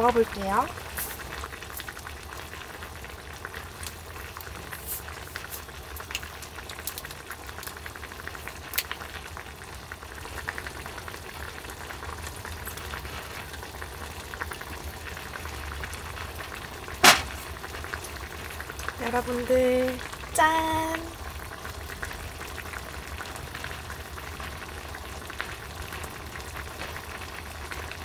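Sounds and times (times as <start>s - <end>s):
hotpot bubbling: 0.0s - 28.0s.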